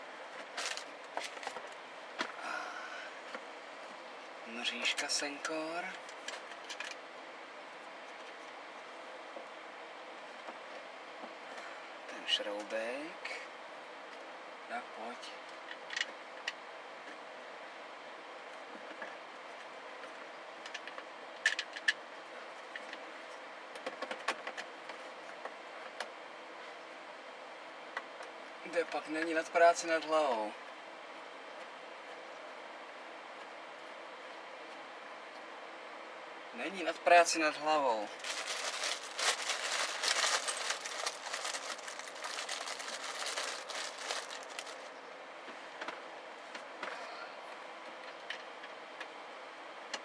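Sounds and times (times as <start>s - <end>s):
hands rustling and scraping: 38.2s - 44.9s.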